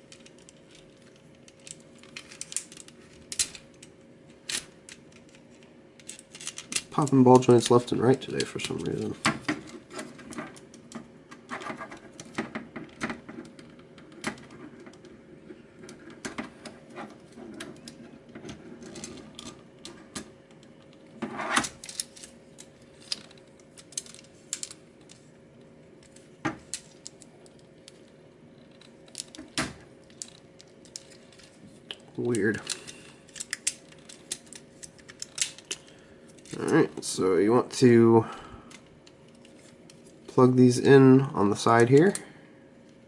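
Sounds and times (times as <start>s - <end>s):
plastic toy parts clicking: 32.6s - 36.6s.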